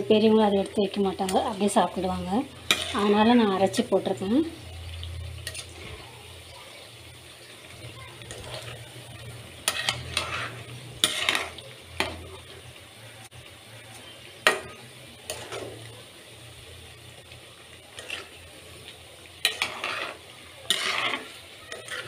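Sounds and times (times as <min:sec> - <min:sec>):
oil sizzling and bubbling: 0:00.0 - 0:22.0
metal ladle scraping a pan: 0:00.8 - 0:04.0, 0:04.9 - 0:06.1, 0:08.2 - 0:12.4, 0:14.4 - 0:15.9, 0:17.8 - 0:18.5, 0:19.4 - 0:22.0.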